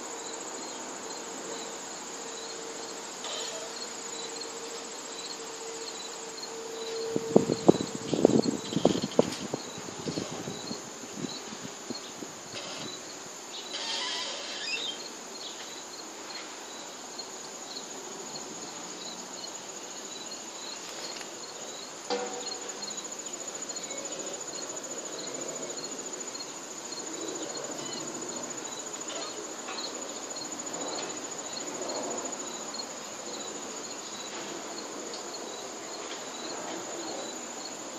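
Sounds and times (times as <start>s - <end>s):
cricket chirping: 0.0s - 37.9s
high-pitched insect trill: 0.0s - 37.9s
sharp knock: 22.1s - 22.7s.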